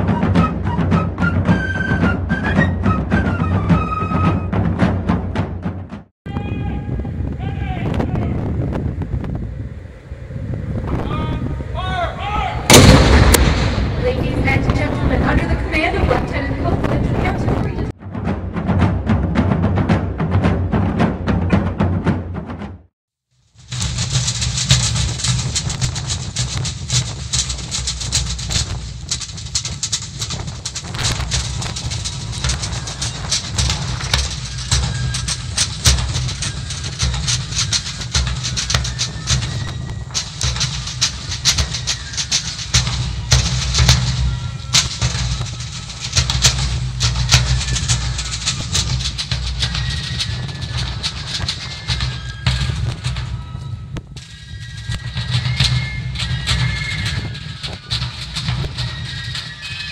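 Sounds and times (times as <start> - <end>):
marching drums: 0.0 - 8.7, 12.6 - 59.9
wind on microphone: 6.3 - 18.0, 23.9 - 59.9.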